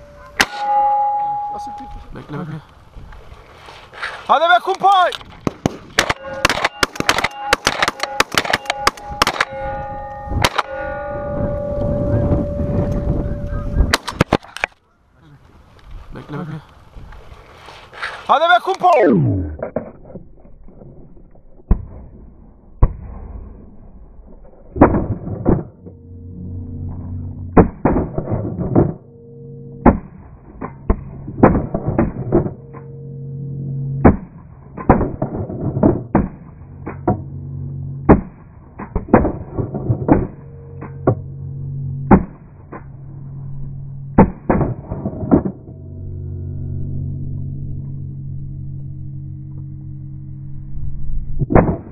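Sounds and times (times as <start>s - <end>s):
steady low hum: 5.2s - 18.3s, 18.9s - 51.9s
shotguns firing: 5.3s - 9.6s.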